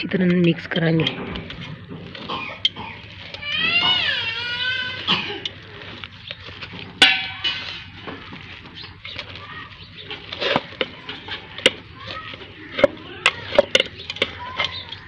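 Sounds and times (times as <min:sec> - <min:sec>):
paste squishing by hand: 0:00.0 - 0:15.0
clinks against metal bowl: 0:07.0 - 0:07.8.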